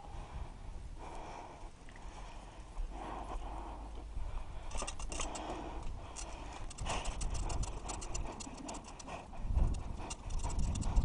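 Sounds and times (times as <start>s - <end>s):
wind rumbling on microphone: 0.0s - 11.0s
bicycle frame rattling: 4.6s - 11.0s.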